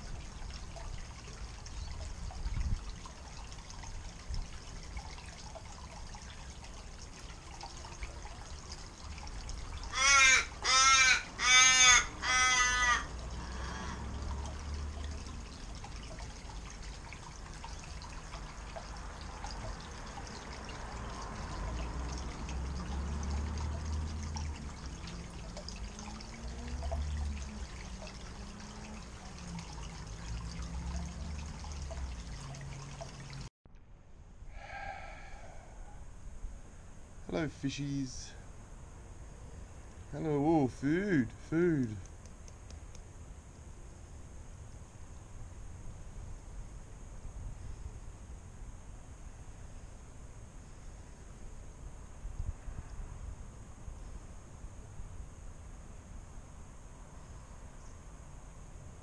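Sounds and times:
water trickling over rocks: 0:00.0 - 0:33.5, 0:37.3 - 0:38.4, 0:39.9 - 0:43.1
crow cawing: 0:09.9 - 0:14.0.

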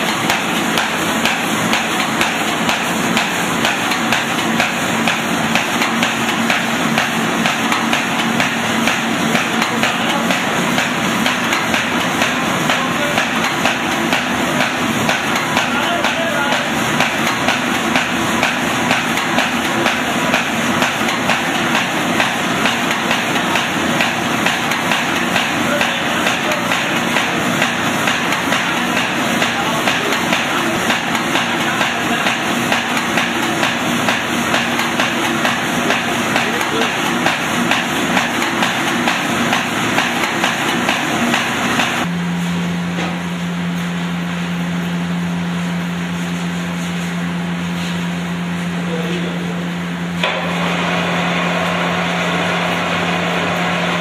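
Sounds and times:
machine mechanism clacking rapidly: 0:00.0 - 0:42.1
steady motor hum: 0:00.0 - 0:54.0.

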